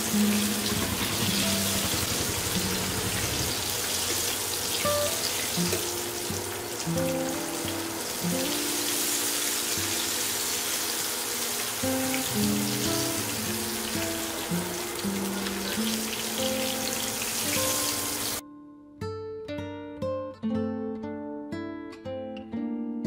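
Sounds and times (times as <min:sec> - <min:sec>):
food sizzling in hot oil: 0:00.0 - 0:18.4.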